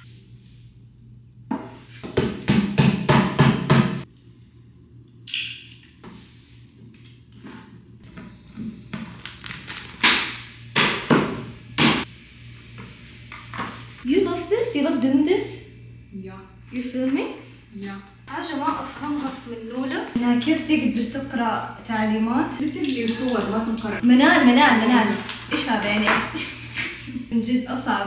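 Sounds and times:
hammer knocking on panels: 2.0s - 4.0s.

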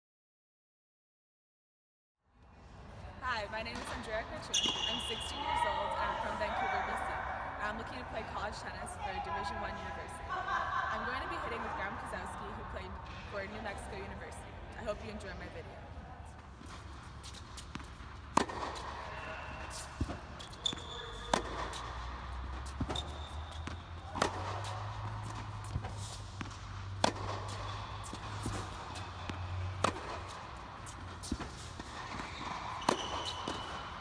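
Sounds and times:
tennis ball struck by racket: 16.7s - 34.0s.

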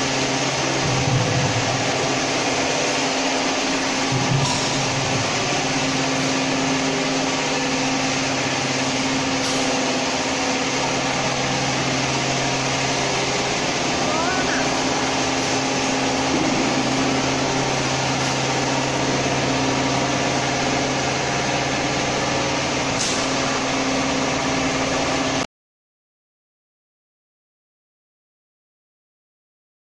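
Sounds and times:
machinery hum: 0.0s - 25.5s.

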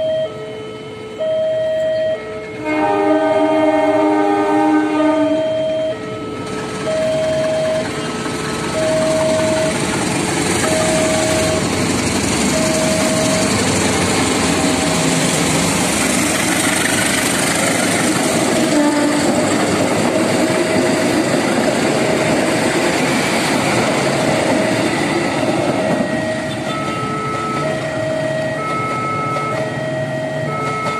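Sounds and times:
two-note crossing alarm chime: 1.2s - 2.6s, 5.2s - 9.8s, 10.6s - 11.7s, 12.5s - 13.7s
train wheels clattering over rails: 6.5s - 29.9s, 30.5s - 30.9s.

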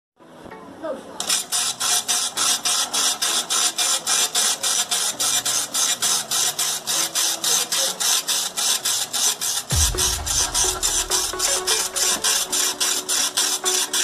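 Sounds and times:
dot-matrix printer rasping buzzes: 1.2s - 14.0s.

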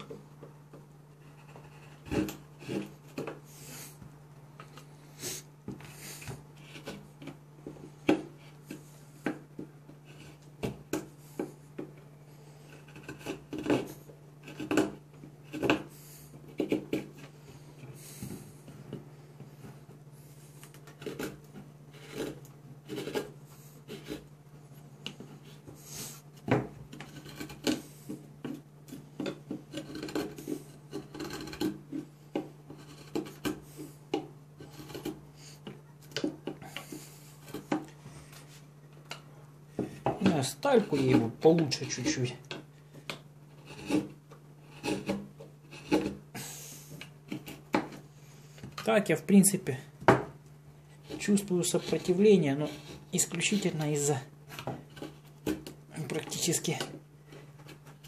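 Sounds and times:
knife shaving wood: 0.0s - 49.9s, 50.8s - 58.0s.

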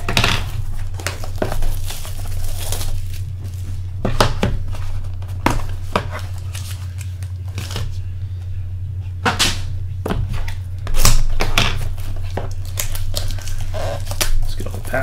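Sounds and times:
steady low hum: 0.0s - 15.0s
plastic wrap crinkling: 0.6s - 4.0s, 4.6s - 8.0s, 11.8s - 15.0s
cardboard tearing: 0.7s - 3.6s, 12.0s - 14.7s.

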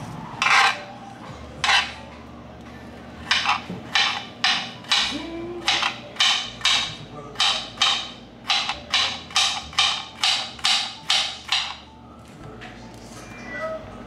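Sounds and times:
knife chopping on cutting board: 3.3s - 11.8s.

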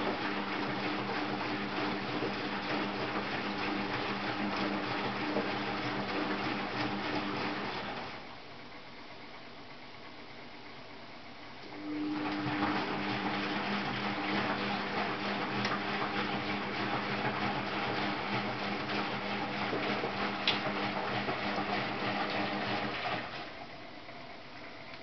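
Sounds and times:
water rushing into washing machine: 0.0s - 8.3s, 11.7s - 23.8s.

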